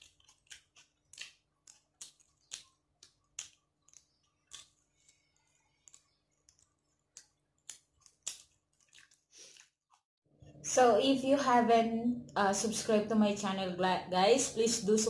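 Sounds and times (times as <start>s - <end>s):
eating clicks and crackles: 0.0s - 10.0s.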